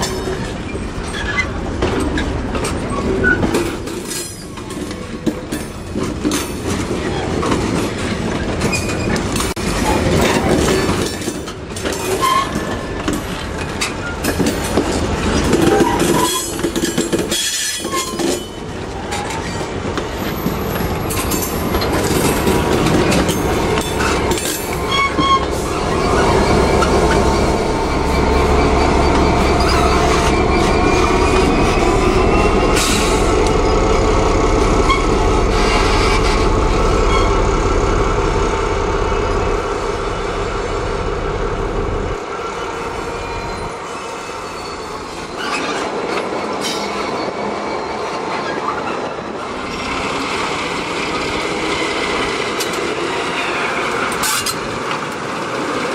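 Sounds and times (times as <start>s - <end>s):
wheels clattering over rail joints: 0.0s - 42.3s, 48.1s - 55.9s
diesel locomotive engine running: 20.6s - 45.4s
steady tone: 24.8s - 42.2s.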